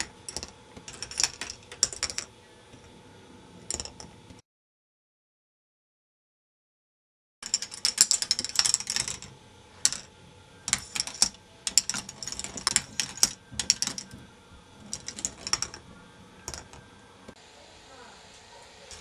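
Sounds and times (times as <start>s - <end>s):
plastic balls clicking and rattling: 0.0s - 3.0s, 3.6s - 4.4s, 7.4s - 17.4s.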